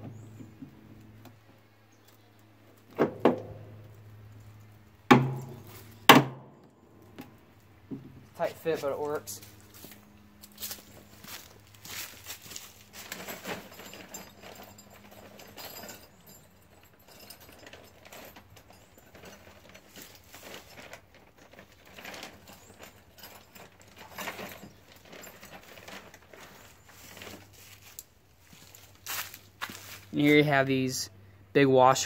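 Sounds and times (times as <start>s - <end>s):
footsteps on dry leaves: 8.8s - 13.4s, 24.9s - 30.6s.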